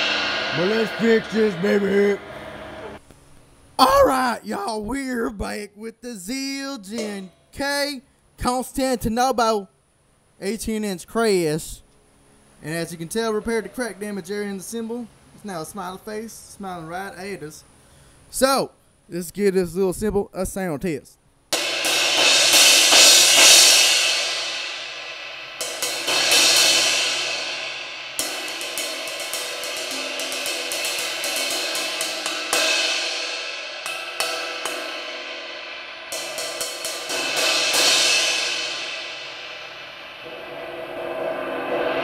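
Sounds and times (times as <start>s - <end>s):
crash cymbal struck with drumstick: 0.0s - 3.0s, 6.8s - 7.5s, 21.5s - 42.0s
cymbal mallet roll: 0.0s - 3.0s, 6.9s - 7.5s, 21.6s - 42.0s.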